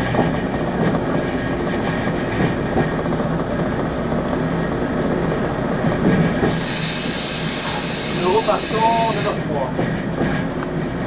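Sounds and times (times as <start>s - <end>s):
diesel locomotive engine rumble: 0.0s - 11.0s
hiss: 6.4s - 9.5s.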